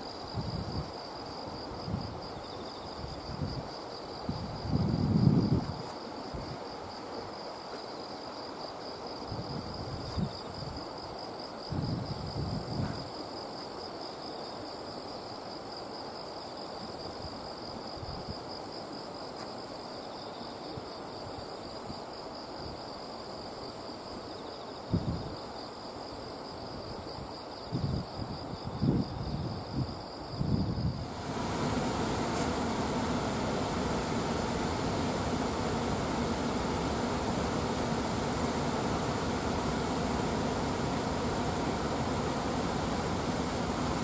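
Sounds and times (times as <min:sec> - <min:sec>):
soft background hiss: 0:31.0 - 0:44.0.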